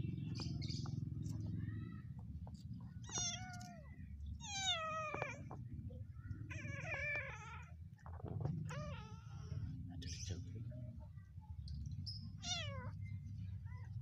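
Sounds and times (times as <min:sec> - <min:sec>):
kitten meowing: 0:03.0 - 0:05.5, 0:12.4 - 0:13.0.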